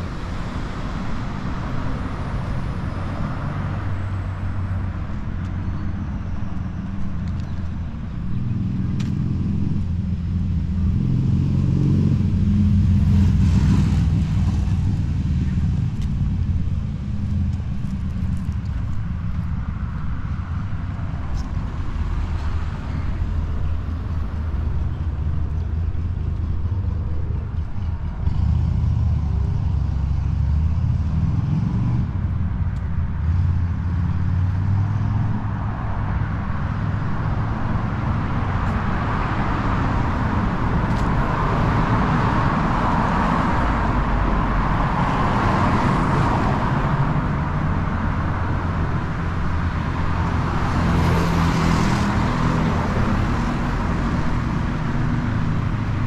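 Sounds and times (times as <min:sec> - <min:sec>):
cars passing: 0:00.0 - 0:56.0.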